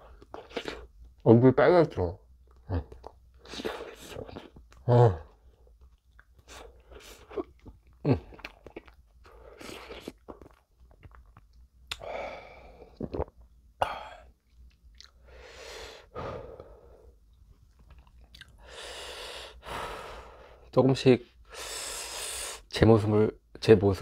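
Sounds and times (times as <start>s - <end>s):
lip smacks and mouth clicks: 2.4s - 4.9s, 5.8s - 12.1s, 14.4s - 15.2s, 17.3s - 18.6s.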